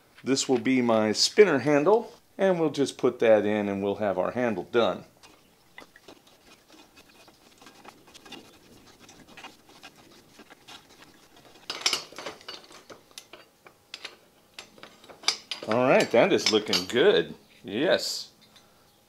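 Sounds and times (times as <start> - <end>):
hand tools scraping on steel: 4.5 - 17.0
metallic clatter of wrench: 11.7 - 16.9.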